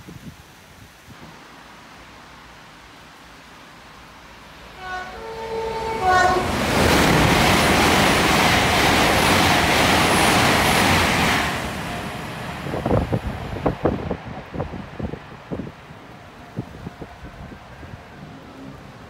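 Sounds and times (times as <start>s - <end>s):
train rushing past: 4.6s - 19.0s
two-tone train horn: 4.7s - 6.8s, 16.1s - 19.0s
wind buffeting microphone: 6.2s - 19.0s.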